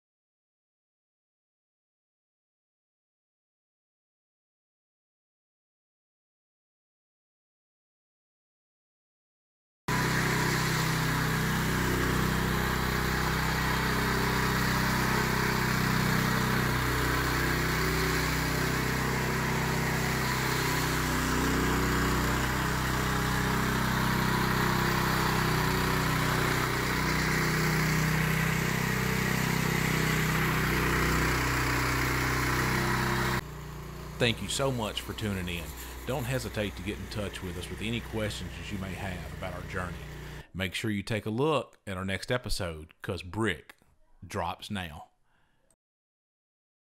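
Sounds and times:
power trowel engine running: 9.9s - 40.5s.

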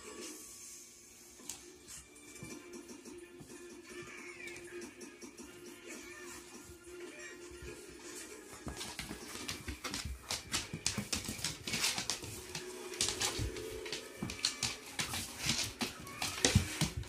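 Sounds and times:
dogs scuffling on board floor: 8.5s - 17.0s.

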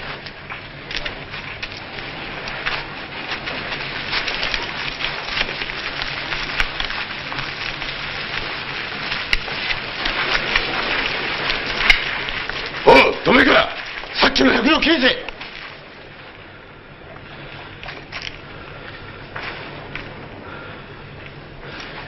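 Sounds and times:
steady rain falling: 0.0s - 22.0s.

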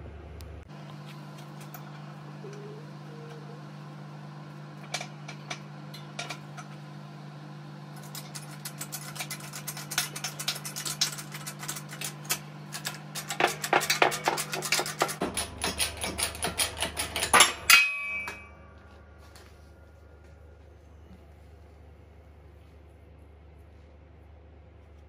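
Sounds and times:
low hum: 0.0s - 25.0s
metal parts knocking: 8.1s - 18.4s.

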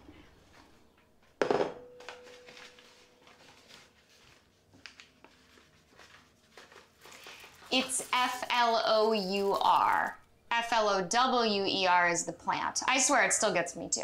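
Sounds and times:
ceramic bowl knock and ring: 1.4s - 2.2s.

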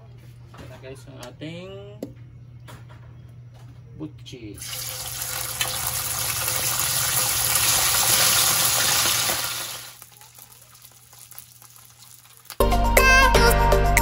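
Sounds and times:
chicken deep-frying in hot oil: 4.6s - 12.6s
oil crackles: 4.6s - 12.7s.

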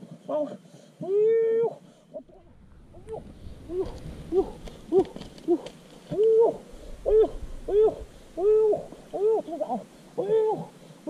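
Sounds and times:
animal hooting calls: 2.2s - 10.8s.

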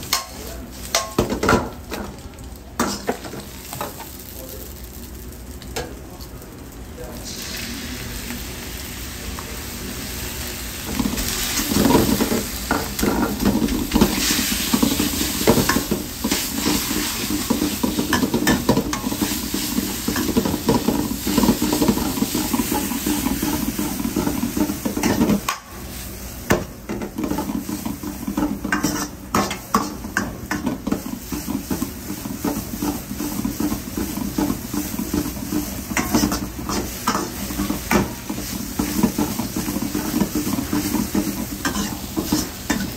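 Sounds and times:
noodles sizzling in a wok: 0.0s - 42.9s
ladle scraping a wok: 27.2s - 42.9s.

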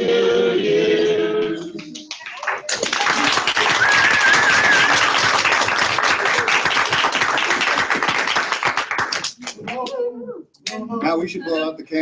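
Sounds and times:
group of people applauding: 1.8s - 10.0s.

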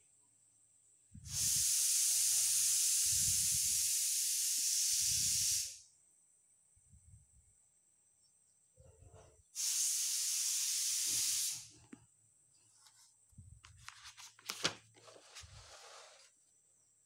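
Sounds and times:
loud steady hiss: 1.2s - 5.9s, 9.6s - 11.8s.

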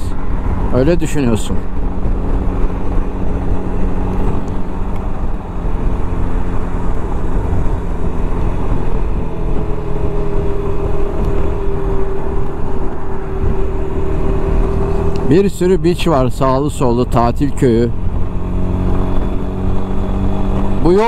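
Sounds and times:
scooter engine drone: 0.0s - 21.0s
wind and road noise: 0.0s - 21.0s
humming tone falling in pitch: 8.8s - 15.3s.

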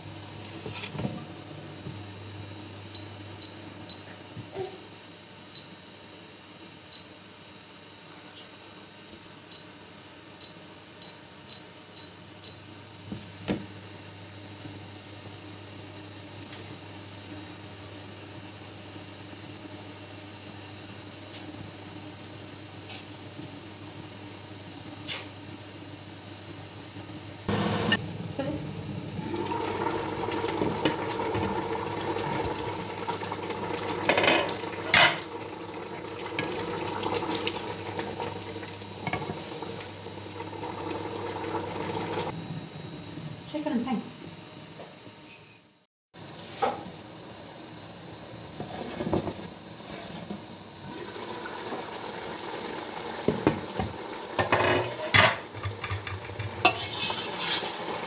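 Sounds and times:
low hum from hob: 0.0s - 58.0s
stew simmering in a pot: 29.2s - 42.3s.

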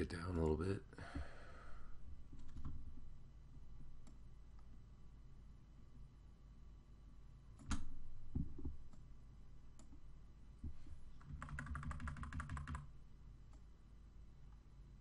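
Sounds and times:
keyboard and mouse clicks: 11.2s - 12.9s.

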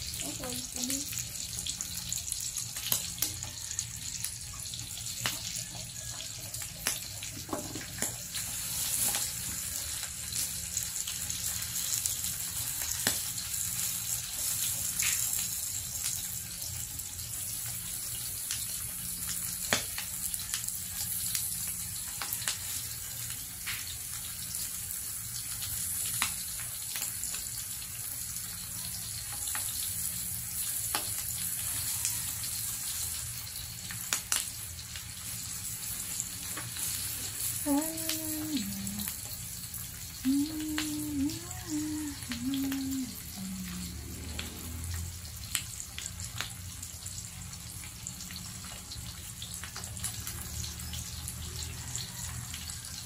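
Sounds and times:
meat sizzling in a pan: 0.0s - 53.0s
grease popping: 17.6s - 24.2s.

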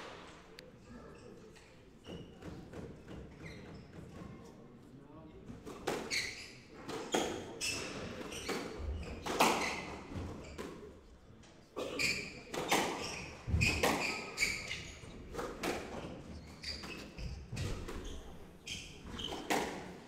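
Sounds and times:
shoes squeaking on wooden floor: 1.1s - 4.4s, 6.1s - 10.7s, 11.9s - 20.0s
squash ball hitting rackets and walls: 5.6s - 10.9s, 12.5s - 18.3s, 19.0s - 20.0s.

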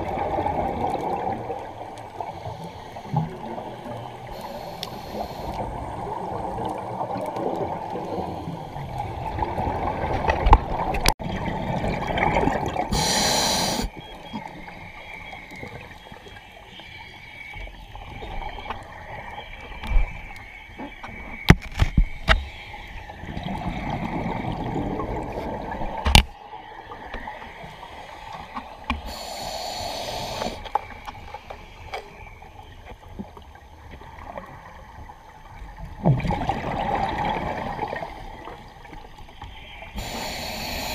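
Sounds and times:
regulator hissing inhalations: 4.3s - 5.6s, 12.9s - 13.9s, 29.0s - 30.7s, 40.0s - 40.9s.

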